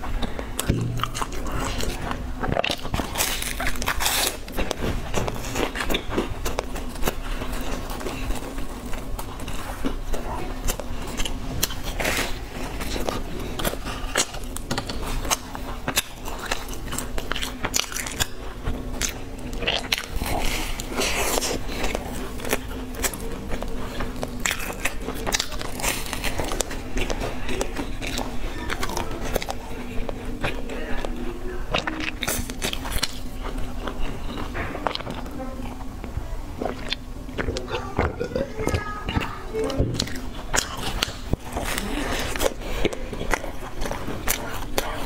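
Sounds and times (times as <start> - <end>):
crust crunching while chewing: 0.0 - 45.0
wet mouth sounds: 30.4 - 45.0.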